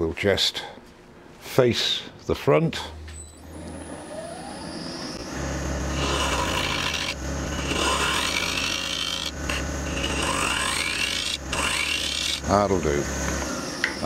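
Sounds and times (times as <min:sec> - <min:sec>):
wood lathe humming: 0:03.5 - 0:14.0
gouge rasping on spinning wood: 0:05.6 - 0:13.3.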